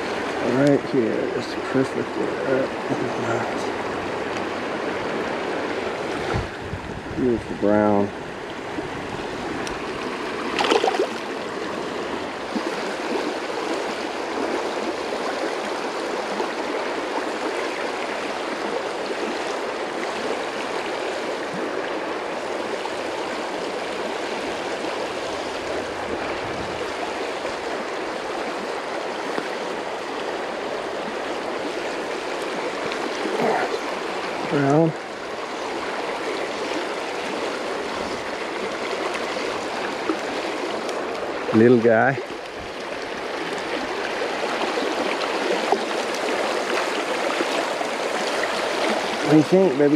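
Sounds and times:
creek water flowing over rocks: 0.0 - 49.9.

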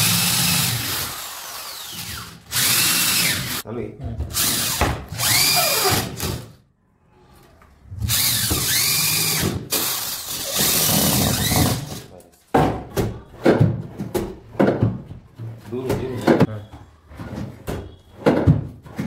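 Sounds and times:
cordless drill driving screws: 0.0 - 3.6, 4.4 - 6.3, 8.1 - 11.9.

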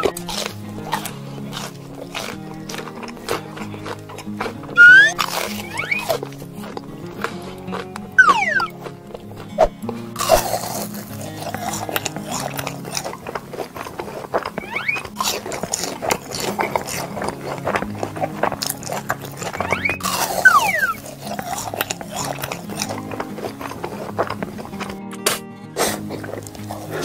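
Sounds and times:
cartoon background music: 0.0 - 13.9, 14.6 - 27.0
gliding sound effect: 4.8 - 5.2, 8.2 - 8.7
noisy falling pitch effect: 8.2 - 8.7.

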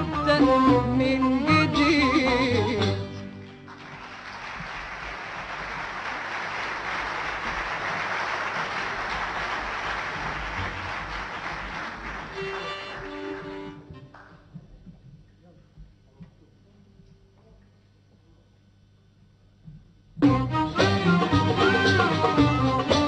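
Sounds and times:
concert audience applauding: 3.1 - 14.5.

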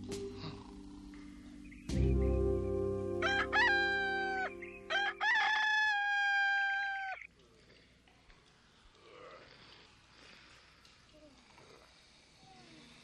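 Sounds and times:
rooster crowing: 3.2 - 7.3.

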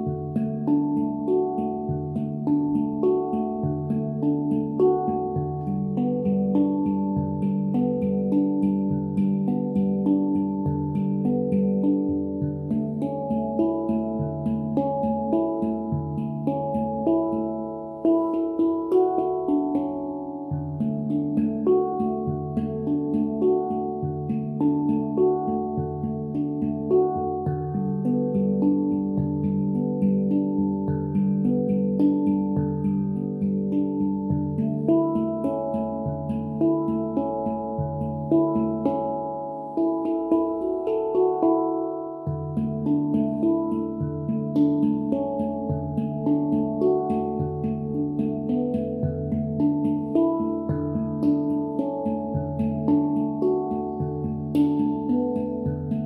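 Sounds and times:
handpan melody: 0.0 - 56.0.

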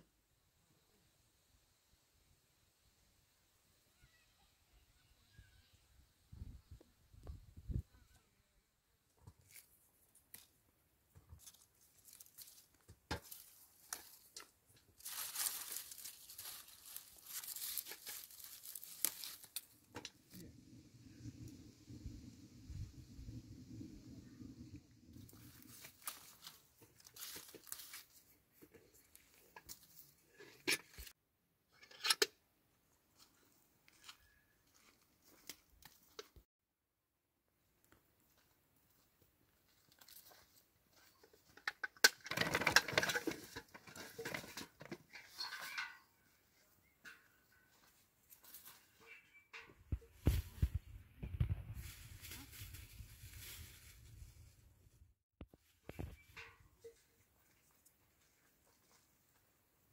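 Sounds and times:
plant leaves rustling: 11.4 - 20.4, 25.2 - 28.3, 51.7 - 54.6
stems snapping: 15.0 - 19.7.

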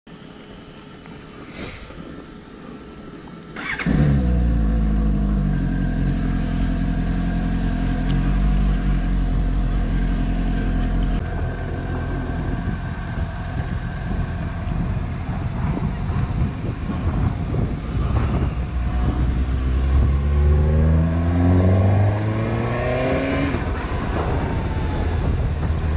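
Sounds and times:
motorcycle riding along street: 2.2 - 25.9
motorcycle engine starting and idling: 3.3 - 16.0.

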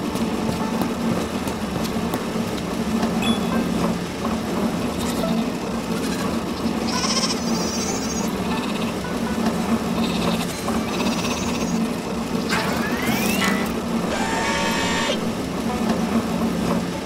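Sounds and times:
conveyor machinery hum: 0.0 - 17.0
sheep bleating: 6.8 - 8.8.

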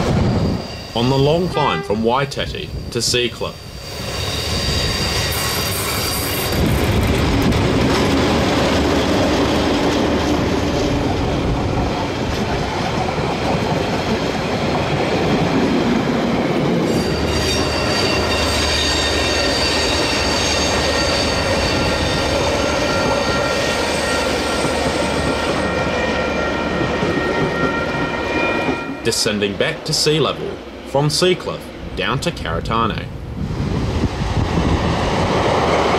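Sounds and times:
high steady whining tones: 0.0 - 11.6
diesel locomotives working hard: 0.0 - 35.9.

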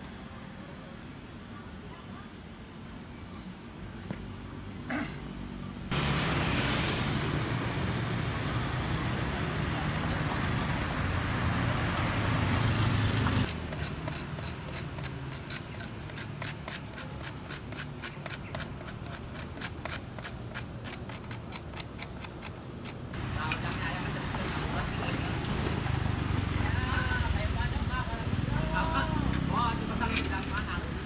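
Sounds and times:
street traffic rumble: 0.0 - 31.0
motorbike passing: 5.9 - 14.8, 23.2 - 31.0.

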